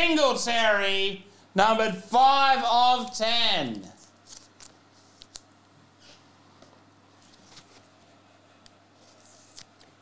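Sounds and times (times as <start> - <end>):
trading cards shuffled: 4.0 - 5.4, 7.2 - 7.9, 9.0 - 9.9.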